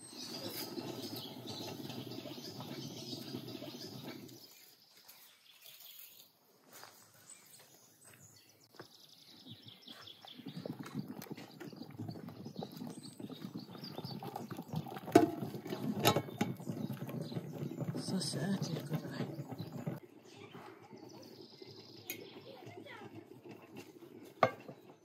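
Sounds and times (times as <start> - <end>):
water boiling in a pot: 0.0 - 4.8, 10.2 - 25.0.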